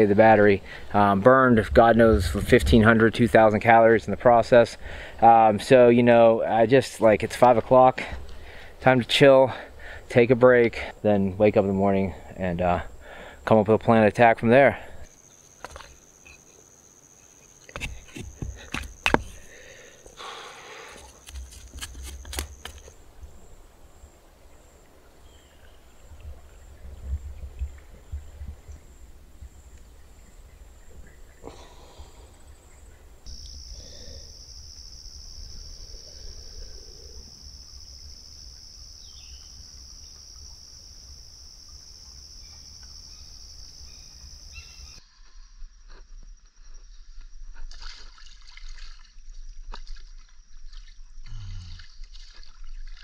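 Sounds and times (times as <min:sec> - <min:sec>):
insects droning: 0:00.0 - 0:53.0
low rumble: 0:01.5 - 0:03.4.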